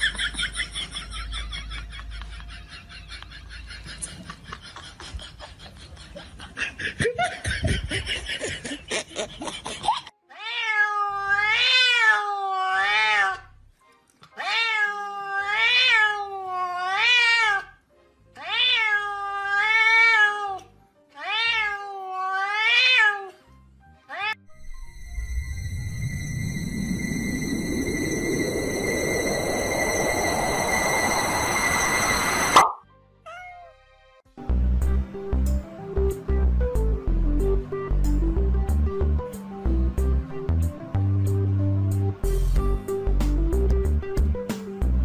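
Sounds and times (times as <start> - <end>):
cat meowing: 10.3 - 13.5, 14.3 - 17.8, 18.4 - 23.4, 24.1 - 24.5, 33.3 - 33.8
faint backing music: 33.0 - 45.0.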